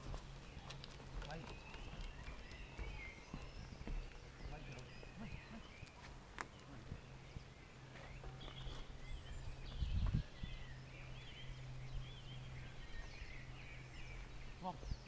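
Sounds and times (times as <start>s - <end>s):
small birds chirping: 0.0s - 15.0s
low rumble on microphone: 6.6s - 15.0s.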